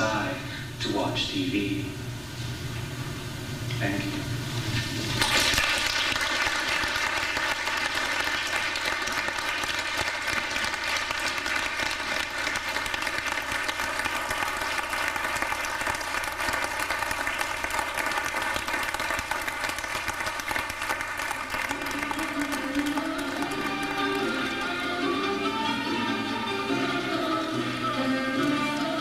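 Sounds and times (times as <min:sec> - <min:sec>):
audience applauding: 0:05.2 - 0:25.5.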